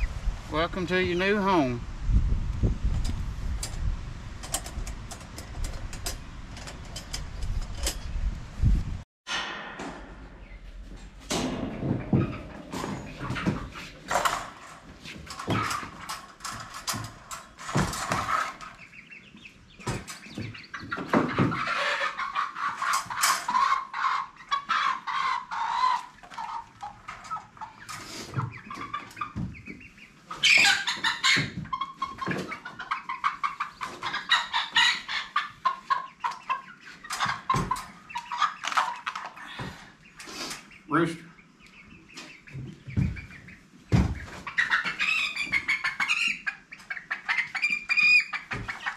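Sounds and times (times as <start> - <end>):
chickens clucking and squawking: 11.3 - 48.9.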